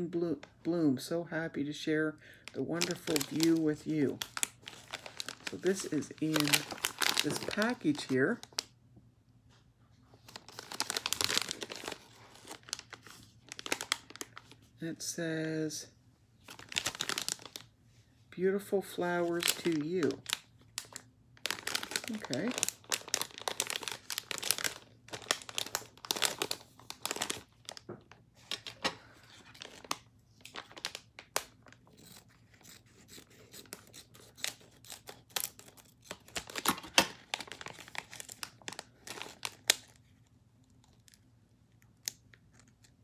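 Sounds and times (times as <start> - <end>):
packaging tearing and crinkling: 2.7 - 8.7, 10.2 - 14.6, 16.5 - 17.7, 19.2 - 27.8, 28.4 - 40.1.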